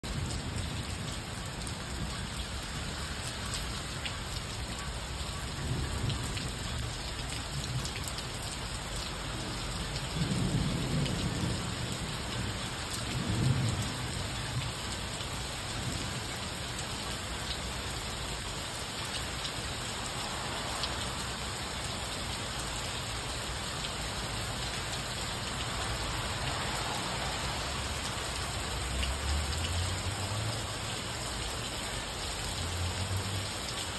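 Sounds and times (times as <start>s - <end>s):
heavy rain pouring: 0.0s - 33.9s
low rumbles of thunder: 9.4s - 14.8s.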